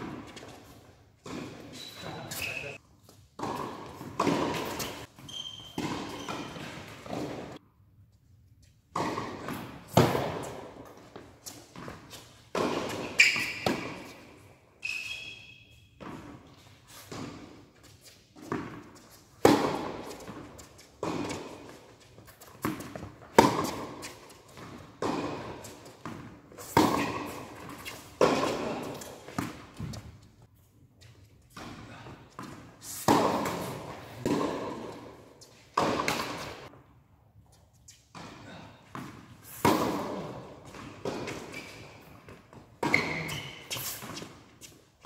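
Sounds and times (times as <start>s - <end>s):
rackets striking tennis ball: 0.0s - 7.6s, 8.9s - 30.4s, 31.3s - 36.8s, 37.9s - 44.9s
tennis ball bouncing: 3.3s - 7.6s, 8.9s - 14.3s, 18.4s - 30.3s, 31.5s - 36.8s, 38.1s - 44.8s.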